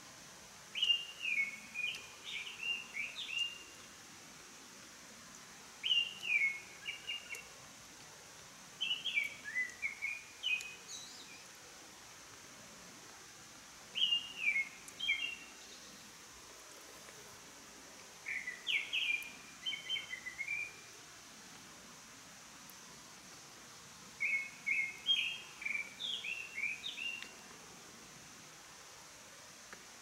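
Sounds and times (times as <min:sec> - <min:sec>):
steady background hiss: 0:00.0 - 0:30.0
songbird whistling: 0:05.8 - 0:07.4, 0:08.8 - 0:11.3, 0:14.0 - 0:15.4, 0:18.3 - 0:20.8, 0:24.2 - 0:27.3.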